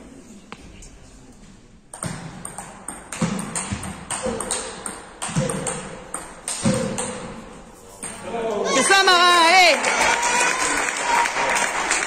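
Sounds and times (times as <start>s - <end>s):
table tennis ball knocking: 1.9s - 8.2s.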